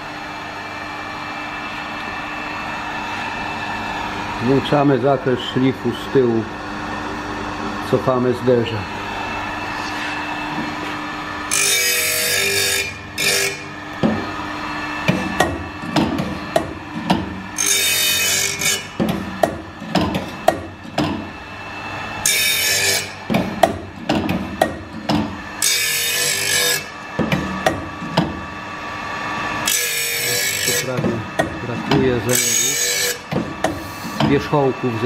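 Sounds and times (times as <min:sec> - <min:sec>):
hissing grind of saw blade: 0:11.5 - 0:13.7, 0:17.6 - 0:19.0, 0:22.2 - 0:23.2, 0:25.6 - 0:27.0, 0:29.6 - 0:31.0, 0:31.6 - 0:34.6
mechanism clicks and knocks: 0:15.0 - 0:17.4, 0:19.0 - 0:21.2, 0:23.2 - 0:25.4, 0:27.2 - 0:28.4.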